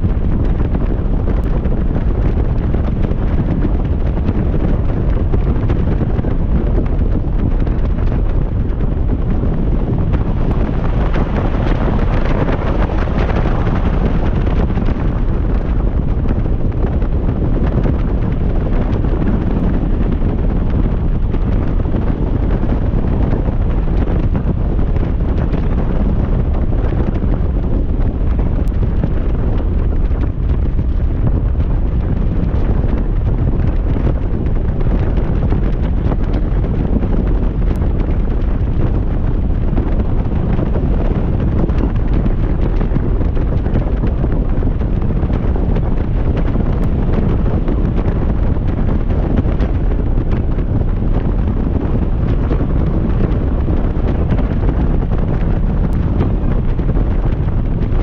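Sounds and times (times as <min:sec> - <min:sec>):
wind buffeting microphone: 0:00.0 - 0:58.0.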